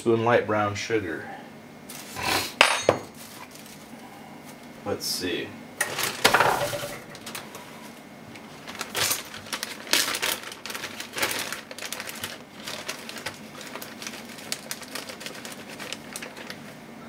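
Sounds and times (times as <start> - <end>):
plastic bag crinkling: 3.1 - 3.9, 5.9 - 7.6, 8.4 - 16.8.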